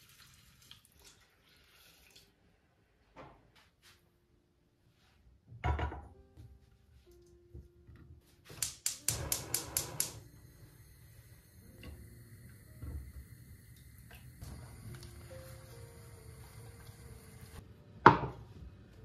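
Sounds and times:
spark igniter clicking: 8.6s - 10.3s
gas hissing: 8.6s - 17.6s.

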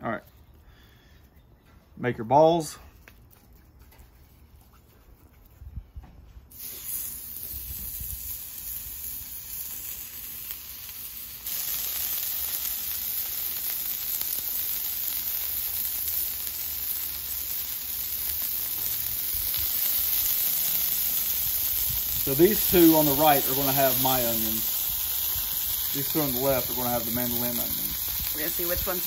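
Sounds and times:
meat sizzling on griddle: 6.5s - 29.0s.

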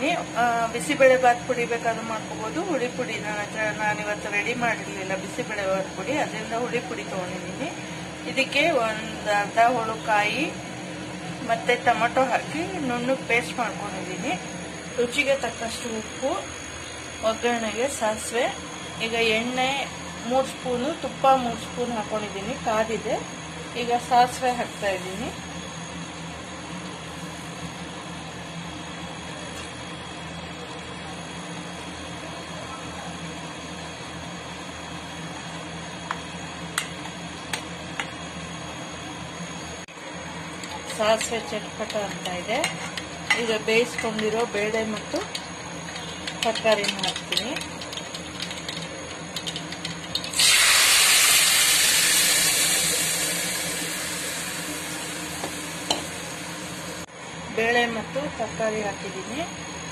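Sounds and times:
steady mechanical hum: 0.0s - 59.9s
loud sizzle: 33.8s - 57.2s
mustard seeds crackling in oil: 44.1s - 53.7s
lentils poured into hot oil: 50.1s - 54.6s.

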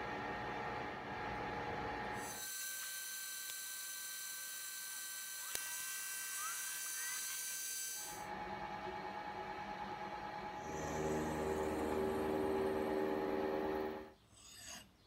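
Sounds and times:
milling machine whine: 0.0s - 14.1s
low pulsing machine hum: 8.0s - 14.1s.

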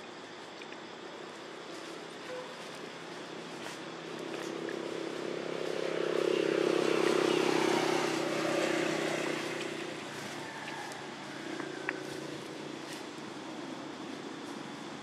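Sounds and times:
vehicle engine running: 3.1s - 15.0s.

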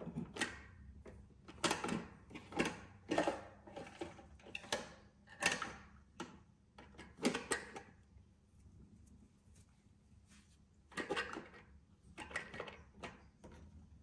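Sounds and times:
plastic toy clicks and knocks: 0.1s - 7.9s, 10.9s - 13.6s.

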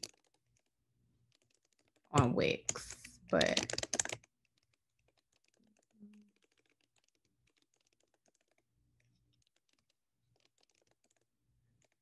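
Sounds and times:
typing on computer keyboard: 0.0s - 0.7s, 1.3s - 12.0s.

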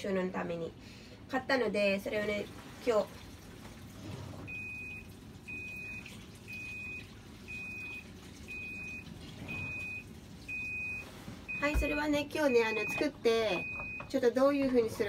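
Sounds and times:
electronic beeper beeping: 8.5s - 14.0s.

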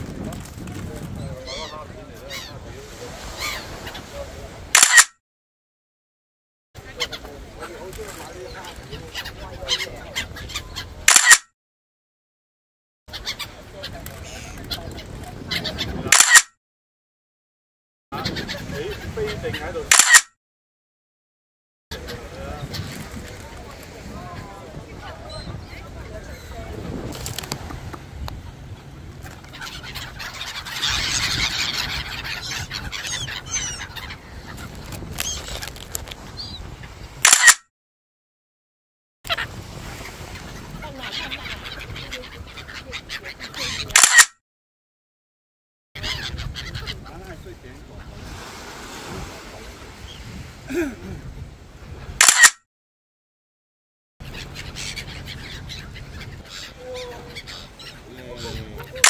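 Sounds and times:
gulls calling: 1.1s - 5.1s, 6.8s - 11.4s, 13.1s - 16.5s, 18.2s - 20.2s, 21.9s - 37.5s, 39.3s - 44.3s, 46.0s - 52.5s, 54.2s - 59.0s.

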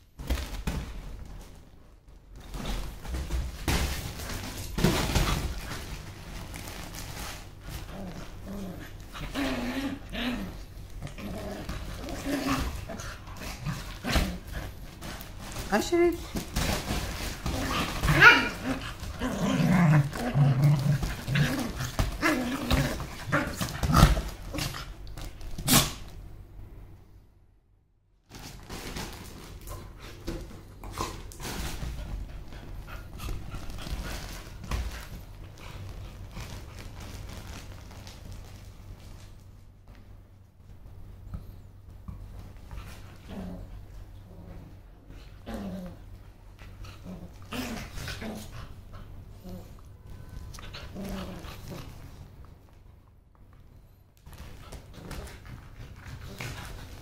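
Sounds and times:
bedding rustling: 0.0s - 26.2s, 28.2s - 52.4s
dogs scuffling: 0.1s - 26.2s, 28.3s - 52.8s, 54.2s - 57.0s
dogs growling: 7.6s - 15.3s, 16.5s - 25.0s, 42.9s - 49.8s, 50.6s - 52.2s
dog whining: 18.1s - 18.8s.

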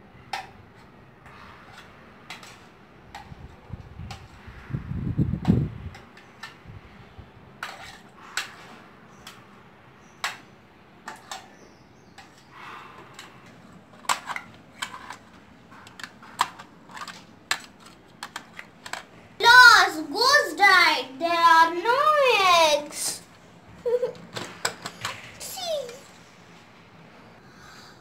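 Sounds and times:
plastic toys tapping and scraping: 0.3s - 4.4s, 5.4s - 6.6s, 7.6s - 9.6s, 10.2s - 20.4s, 23.9s - 26.2s.

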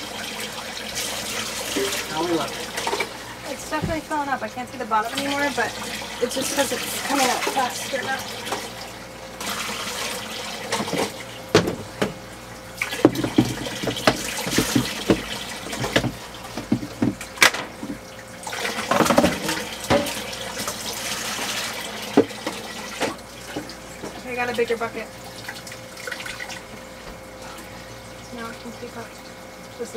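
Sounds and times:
cup knocking: 10.8s - 12.2s, 13.0s - 17.2s.

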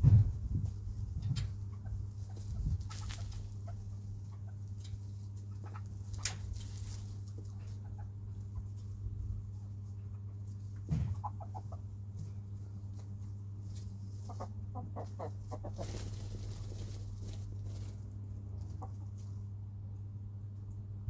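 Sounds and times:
thump: 0.0s - 0.4s, 10.9s - 11.2s
chickens clucking: 0.0s - 19.7s
low hum: 0.0s - 21.0s
rustle: 1.4s - 3.8s, 4.7s - 11.2s, 12.1s - 19.4s.

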